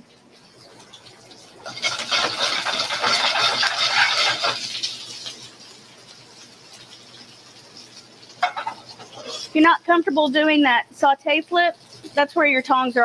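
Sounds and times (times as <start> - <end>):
vegetables sizzling in a pan: 0.0 - 13.0
pan scraping and clattering: 1.6 - 5.4, 8.4 - 9.6.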